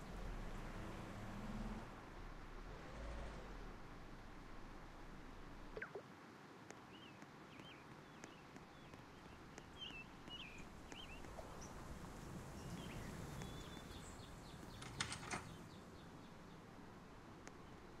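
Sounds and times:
bird chirps: 0:05.8 - 0:06.0, 0:06.9 - 0:11.8, 0:12.6 - 0:16.1
sharp clicks: 0:14.6 - 0:15.6.

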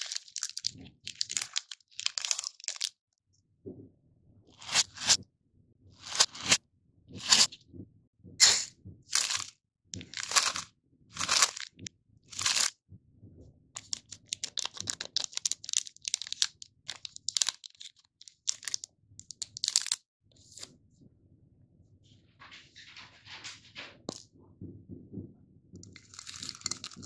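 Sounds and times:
foil wrapper crinkling: 0:00.0 - 0:02.9, 0:09.2 - 0:11.8, 0:12.4 - 0:12.7, 0:13.8 - 0:20.0, 0:26.0 - 0:27.0
scissors snipping wrapper: 0:00.0 - 0:02.9, 0:06.1 - 0:06.6, 0:13.8 - 0:20.0, 0:25.9 - 0:27.0.

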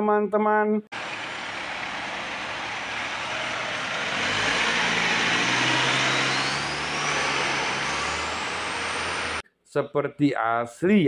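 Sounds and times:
truck diesel engine driving: 0:00.9 - 0:09.4
thin high whine rising: 0:01.0 - 0:09.4.

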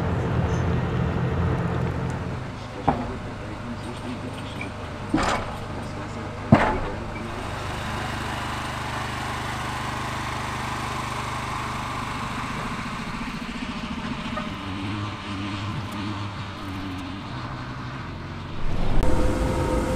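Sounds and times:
boat lift mechanical rumble: 0:00.0 - 0:19.9
sharp metallic clunks: 0:02.2 - 0:07.8.

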